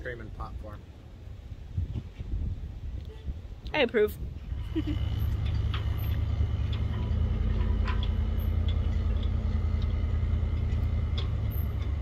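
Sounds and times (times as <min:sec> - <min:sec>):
car engine and road noise: 0:04.4 - 0:12.0.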